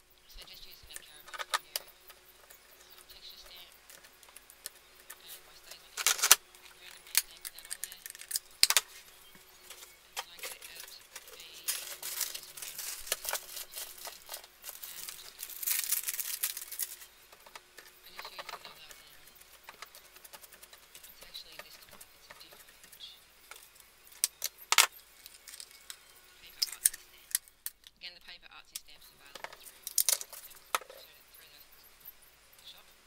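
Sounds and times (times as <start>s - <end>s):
scratchy rustling: 0.9s - 27.4s
paper rustling under hands: 3.2s - 23.9s.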